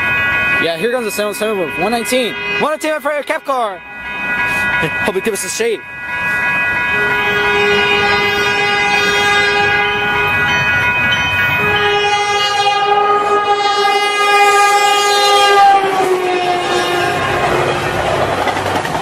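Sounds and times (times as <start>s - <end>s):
train rumbling on rails: 0.0s - 19.0s
train air horn blasts: 2.1s - 2.9s, 6.9s - 10.4s, 11.6s - 18.0s.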